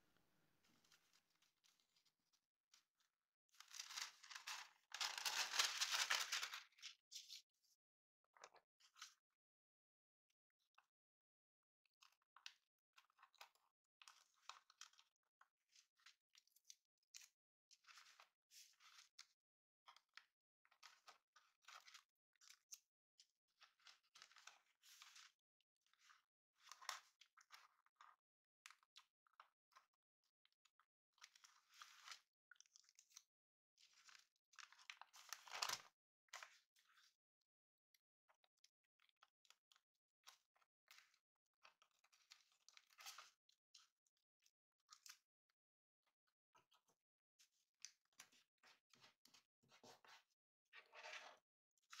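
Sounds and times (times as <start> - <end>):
paper rustling and crinkling: 3.6 - 7.7, 34.0 - 36.6.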